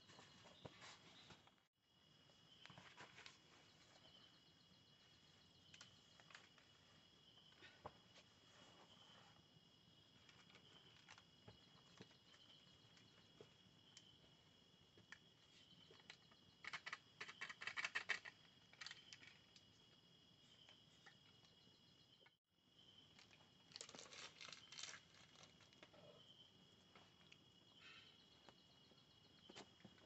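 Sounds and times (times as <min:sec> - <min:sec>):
crickets chirring: 0:00.0 - 0:30.0.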